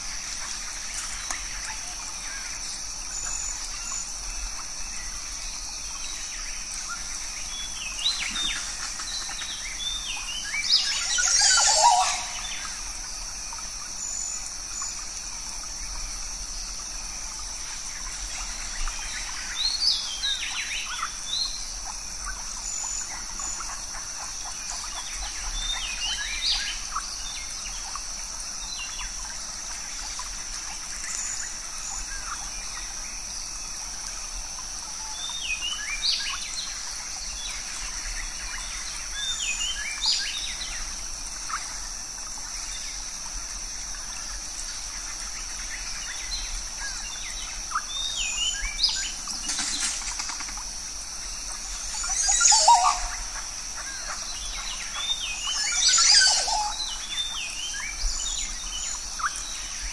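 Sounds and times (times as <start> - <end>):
high-pitched insect drone: 0.0 - 59.9
birds chirping: 51.7 - 53.6.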